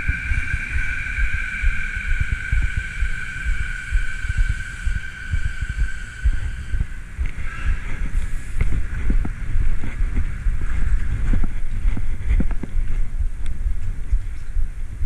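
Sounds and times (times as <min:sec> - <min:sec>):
steady high whine: 0:00.0 - 0:15.0
bicycle handling rumble: 0:05.3 - 0:15.0.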